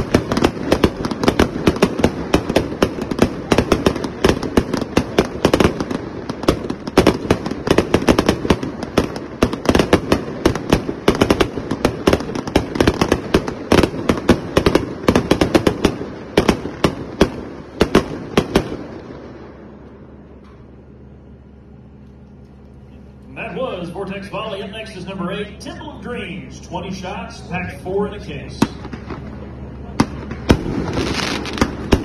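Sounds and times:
fireworks launching and exploding: 0.0s - 20.5s, 23.5s - 32.0s.

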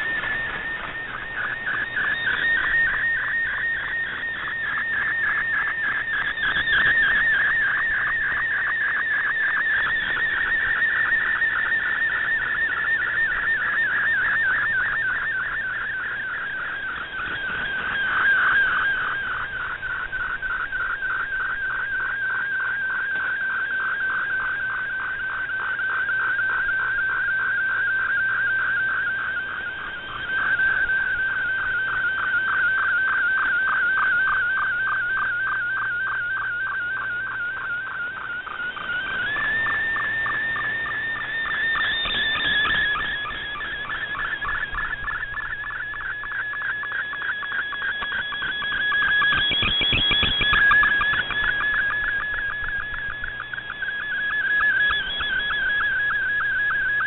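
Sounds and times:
faint radio static: 0.0s - 57.0s
warbling radio data tone: 0.0s - 57.0s.

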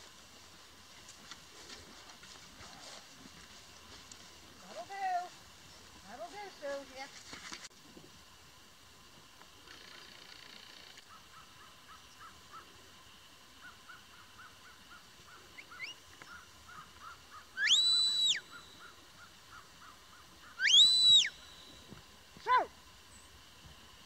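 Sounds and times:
sliding whistle blasts: 17.6s - 18.4s, 20.6s - 21.8s.

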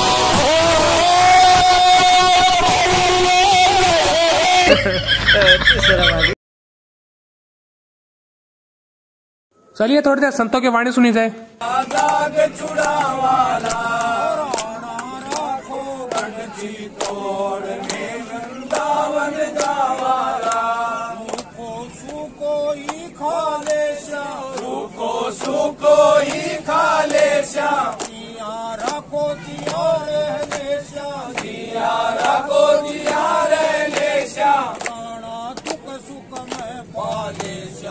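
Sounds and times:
men singing a chant: 0.0s - 5.0s, 11.6s - 37.9s
hand clapping: 11.6s - 17.2s, 17.8s - 37.6s.

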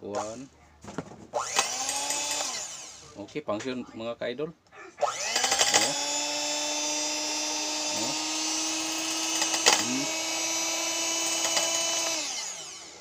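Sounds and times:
hand mixer motor whine: 1.4s - 3.2s, 5.0s - 13.0s.

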